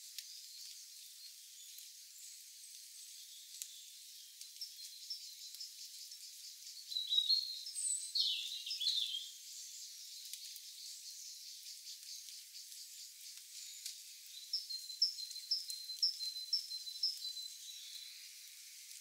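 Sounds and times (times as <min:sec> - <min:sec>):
small ticks: 0:00.0 - 0:03.8, 0:04.4 - 0:06.8, 0:10.1 - 0:19.0
birds chirping: 0:00.3 - 0:18.6.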